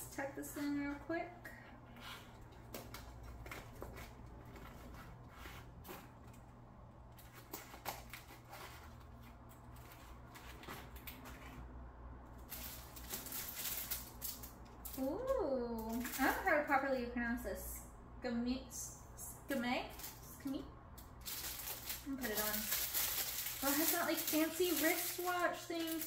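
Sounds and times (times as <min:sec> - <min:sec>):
packaging rustling and clicking: 0:21.0 - 0:26.0.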